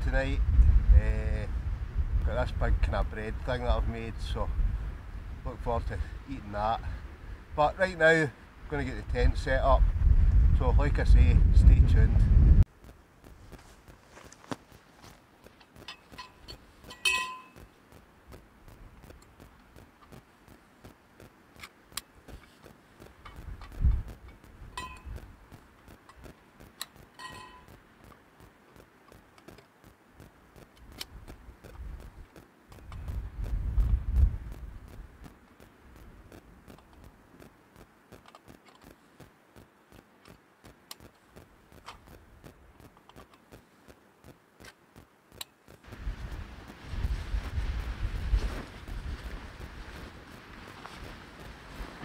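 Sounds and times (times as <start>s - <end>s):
tent pole clicks and taps: 12.8s - 45.9s
tent poles knocking together: 13.5s - 17.8s.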